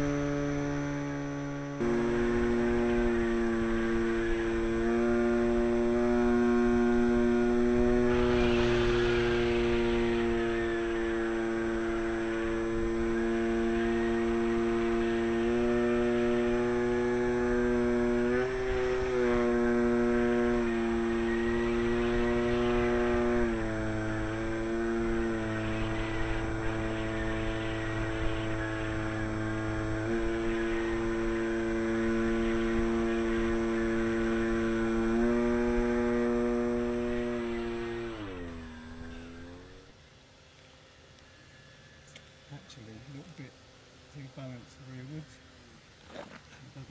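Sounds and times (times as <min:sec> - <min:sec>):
electric motor and propeller whine: 0:00.0 - 0:46.9
rush of air: 0:07.8 - 0:11.7.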